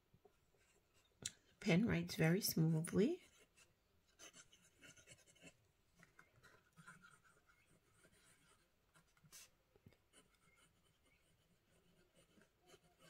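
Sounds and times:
pen scratching on paper: 0:03.2 - 0:05.6, 0:06.3 - 0:13.0.

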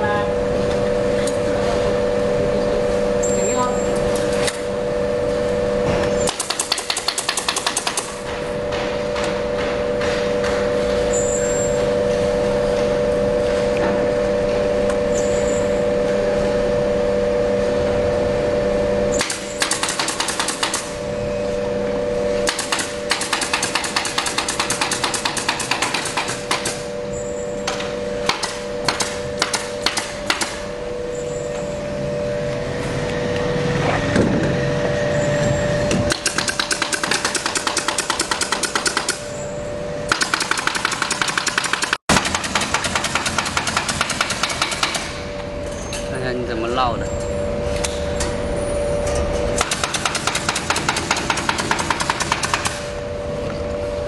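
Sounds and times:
steady mechanical hum: 0:00.0 - 0:54.0
nail gun rapid strikes: 0:06.2 - 0:08.2, 0:19.1 - 0:20.9, 0:22.4 - 0:26.8, 0:28.2 - 0:30.6, 0:36.1 - 0:39.2, 0:40.1 - 0:45.2, 0:49.6 - 0:52.9.

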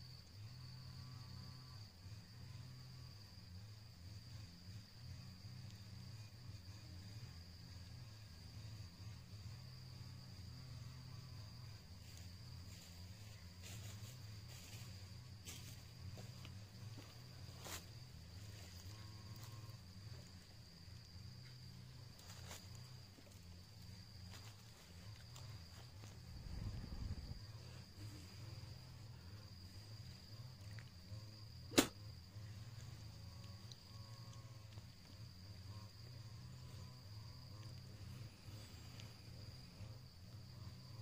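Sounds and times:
high-pitched insect drone: 0:00.0 - 0:41.0
low rumble: 0:25.9 - 0:28.1
sharp click: 0:31.7 - 0:32.0.

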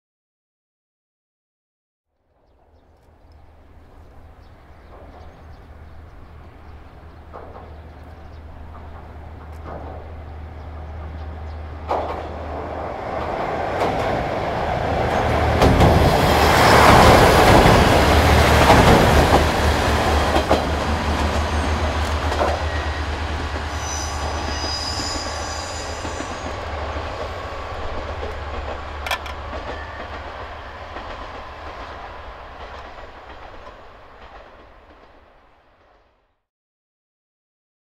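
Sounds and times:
train wheels clattering over joints: 0:07.1 - 0:10.2, 0:25.9 - 0:32.0
high-pitched wheel squeal: 0:22.5 - 0:26.7.

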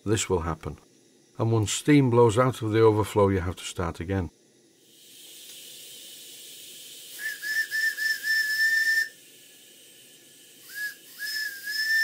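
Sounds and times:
steam hissing: 0:04.7 - 0:12.0
steam whistle toots and blast: 0:07.1 - 0:09.2, 0:10.6 - 0:12.0.

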